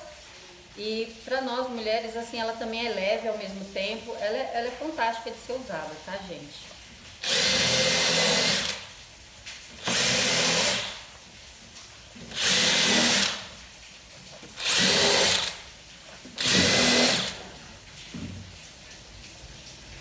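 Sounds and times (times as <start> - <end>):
cordless drill boring into wood: 7.2 - 8.9, 9.8 - 11.0, 12.3 - 13.6, 14.6 - 15.6, 16.4 - 17.4.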